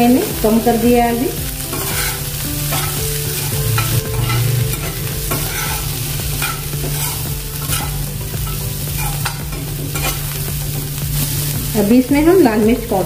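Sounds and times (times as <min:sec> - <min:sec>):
vegetables frying in oil: 0:00.0 - 0:13.0
spoon scraping a pan: 0:01.7 - 0:10.4
steady low hum: 0:02.5 - 0:08.8.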